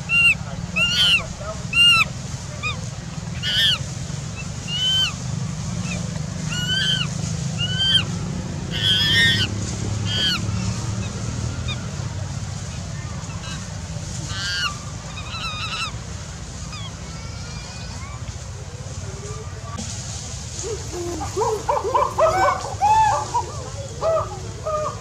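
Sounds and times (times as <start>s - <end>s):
steady low hum: 0.0s - 25.0s
animal short high calls: 0.1s - 2.8s, 3.4s - 3.8s, 5.8s - 8.1s, 8.7s - 9.5s, 10.1s - 10.4s.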